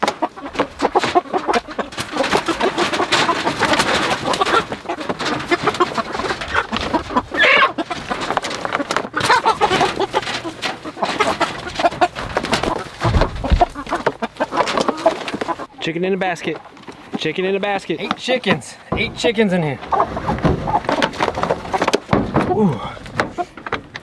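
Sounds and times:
crate handling clatter: 0.0s - 15.7s, 18.0s - 24.0s
wings flapping: 0.0s - 15.7s
chickens clucking and squawking: 0.0s - 24.0s
low thump: 13.0s - 13.8s.

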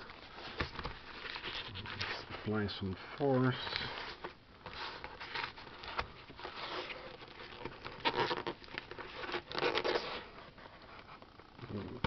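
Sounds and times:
knife scraping plastic and cardboard: 4.8s - 10.4s.

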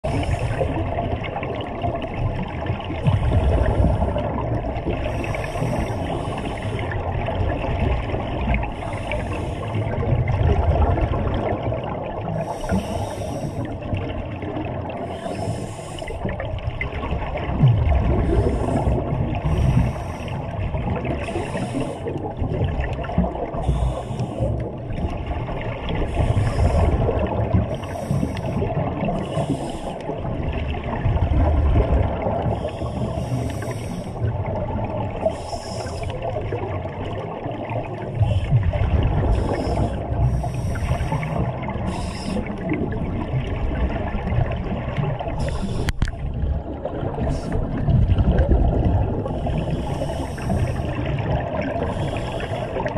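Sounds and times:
exhaled bubbles gurgling underwater: 0.0s - 52.9s
scuba regulator hiss: 12.4s - 13.7s, 15.1s - 16.2s, 21.2s - 22.1s, 23.6s - 24.5s, 26.1s - 27.0s, 27.8s - 28.6s, 32.6s - 34.2s, 35.3s - 36.1s, 39.3s - 42.6s, 45.4s - 46.0s, 49.4s - 50.9s.

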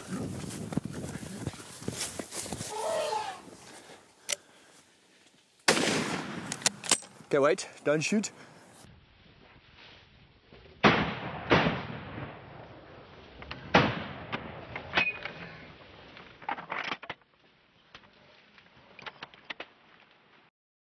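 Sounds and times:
rifle shots echoing: 5.7s - 6.8s, 10.8s - 12.7s.

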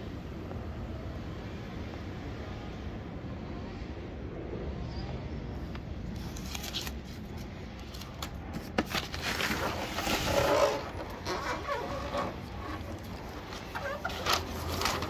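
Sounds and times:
packing paper rustling: 6.1s - 15.0s
clicks and scrapes: 6.2s - 15.0s.

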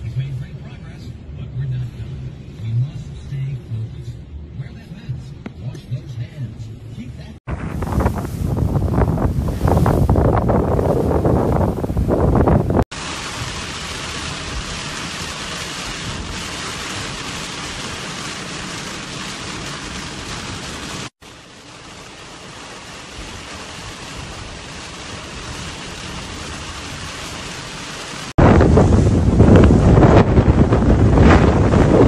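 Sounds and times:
wind on microphone: 7.5s - 12.9s, 28.4s - 32.0s
heavy rain on moving car: 8.9s - 32.0s.

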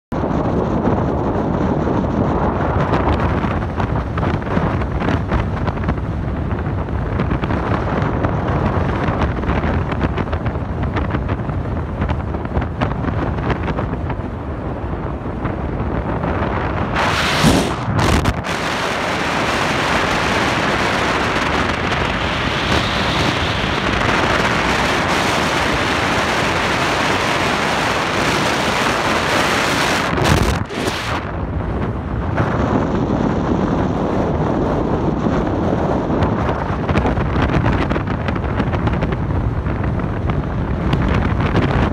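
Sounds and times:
motorboat engine and water rush: 0.1s - 41.9s
wind buffeting microphone: 0.1s - 41.9s
loud blast: 16.9s - 18.8s.

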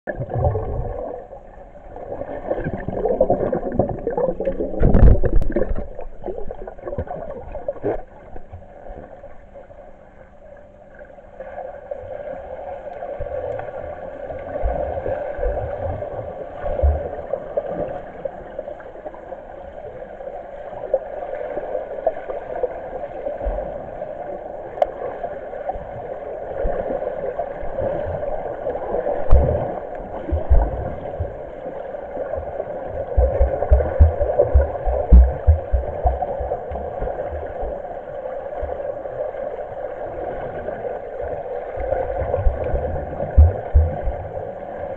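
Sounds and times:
muffled underwater water rush: 0.0s - 44.9s
dull low underwater thumps: 3.6s - 7.1s, 29.3s - 29.7s, 30.3s - 31.4s, 32.4s - 37.8s, 42.2s - 44.5s.

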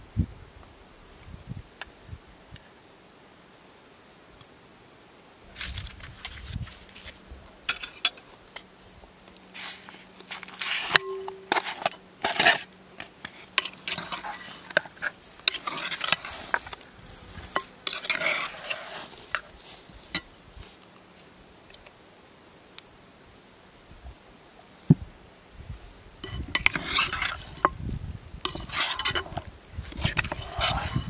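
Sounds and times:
knife and spoon clinking on pot: 26.2s - 27.7s, 28.5s - 29.4s.

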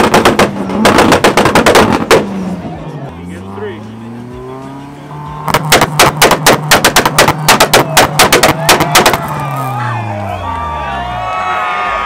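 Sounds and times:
exhaust pops and bangs: 0.0s - 2.4s, 5.4s - 9.6s
car engine revving: 0.0s - 11.6s.

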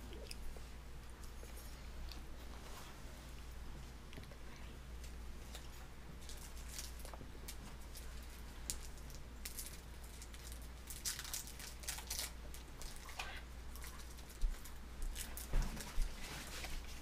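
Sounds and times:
baby eating with soft smacks: 0.0s - 9.9s
low steady hum: 0.0s - 17.0s.

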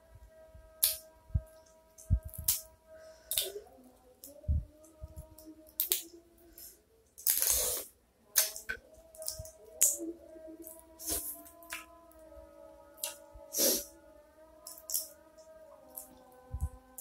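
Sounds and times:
faint background music: 0.0s - 17.0s
crab shells cracking and clicking: 0.8s - 1.0s, 2.0s - 2.6s, 3.3s - 3.5s, 5.7s - 6.1s, 8.3s - 10.0s, 14.6s - 15.1s.

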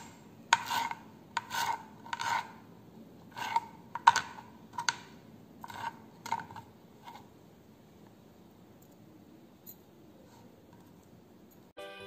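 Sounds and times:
knife chopping on cutting board: 0.5s - 2.5s.

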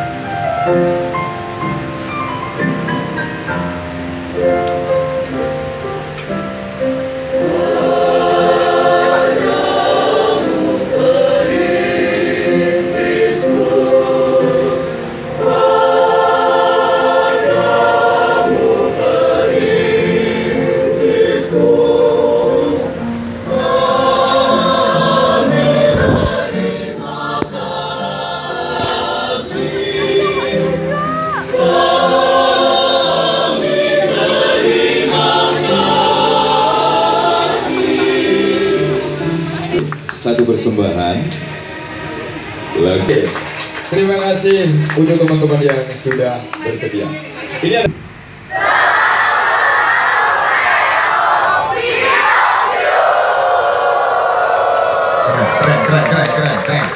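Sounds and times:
choir singing in harmony: 0.0s - 39.9s, 40.8s - 44.4s, 46.8s - 56.9s.

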